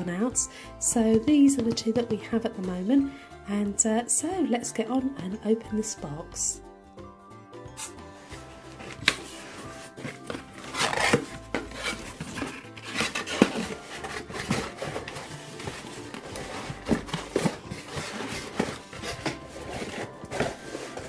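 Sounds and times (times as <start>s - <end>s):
background music: 0.0s - 21.0s
cardboard box being opened: 8.7s - 21.0s.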